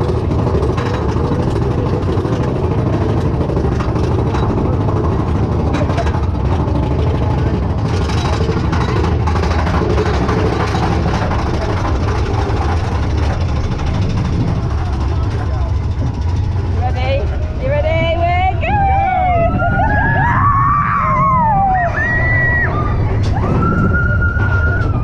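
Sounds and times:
clicks and rattles: 0.0s - 16.8s
roller coaster rumbling on track: 0.0s - 25.0s.

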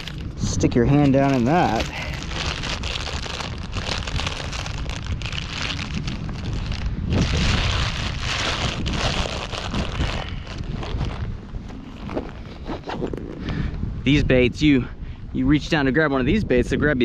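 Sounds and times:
plastic bag crinkling: 0.0s - 0.3s, 1.0s - 12.4s.

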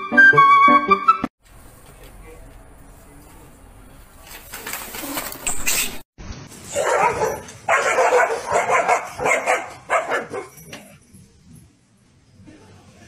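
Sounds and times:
dog barking: 6.7s - 10.6s.

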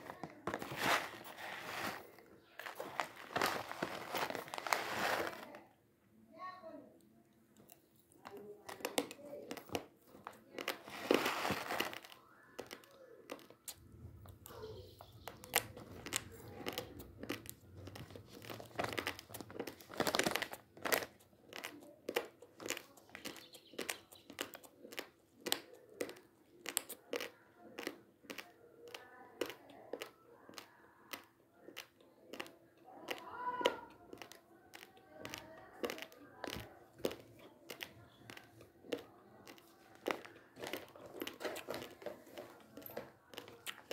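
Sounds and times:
plastic packet crinkling: 0.0s - 5.6s, 10.5s - 13.5s, 15.5s - 23.4s.

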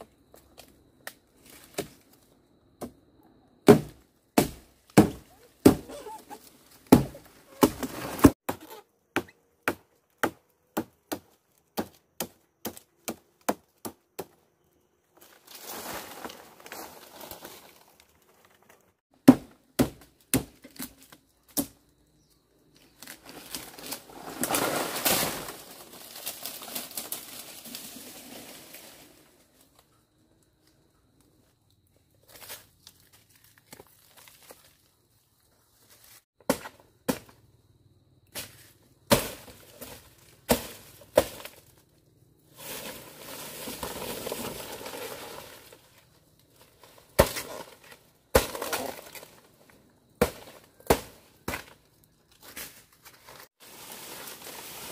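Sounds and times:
sharp knocks and chops: 3.6s - 6.0s
rustling or crumpling: 52.7s - 54.9s.

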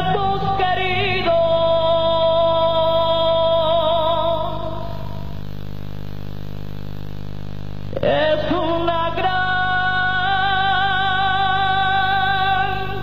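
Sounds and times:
woman singing with vibrato: 0.0s - 5.3s, 7.9s - 13.0s.

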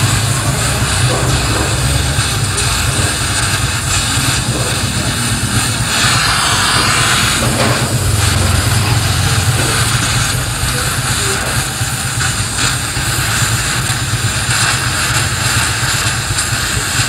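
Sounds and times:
welding arc sizzling: 0.0s - 17.0s.

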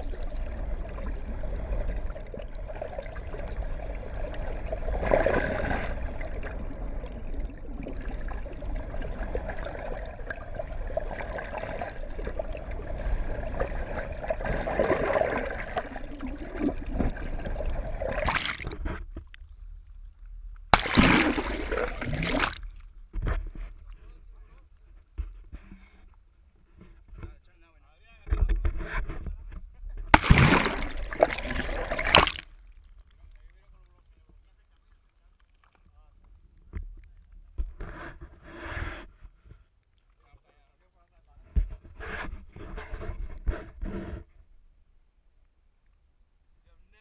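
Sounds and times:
muffled underwater water rushing: 0.0s - 24.6s, 30.0s - 39.0s.

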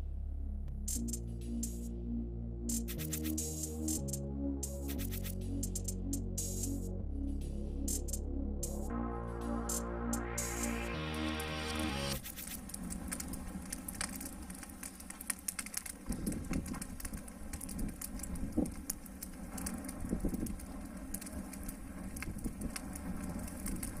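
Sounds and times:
background music: 0.0s - 12.2s
wood fire crackling and popping: 0.9s - 1.8s, 2.7s - 6.9s, 7.8s - 8.9s, 9.6s - 24.0s.

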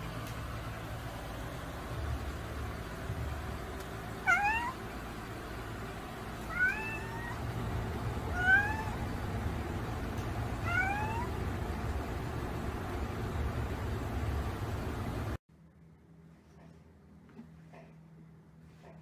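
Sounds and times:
low steady hum: 0.0s - 19.0s
cat meowing: 4.2s - 4.8s, 6.4s - 7.6s, 8.2s - 9.2s, 10.5s - 11.4s.

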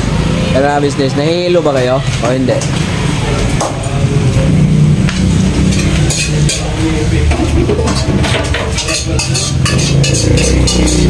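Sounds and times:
pots and dishes clinking: 5.2s - 11.0s.

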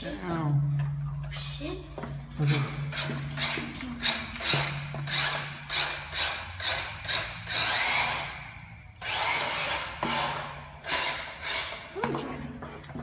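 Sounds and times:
small electric motor whirring: 2.5s - 12.0s.

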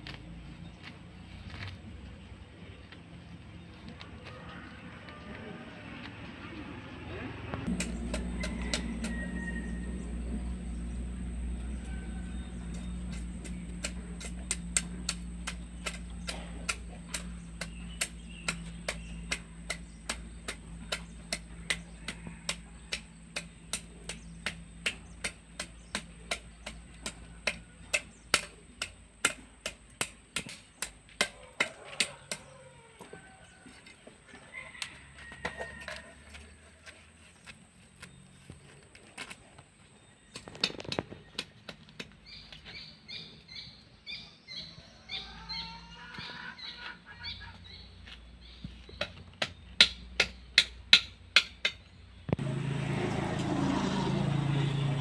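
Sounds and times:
low engine-like hum: 0.0s - 40.4s, 51.5s - 55.0s
sharp evenly spaced knocks: 7.6s - 32.5s, 49.0s - 51.9s.

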